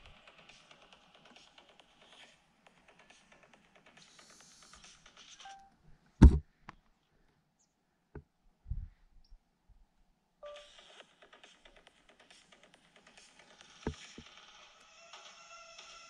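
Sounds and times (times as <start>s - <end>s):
short low thump: 6.2s - 6.4s.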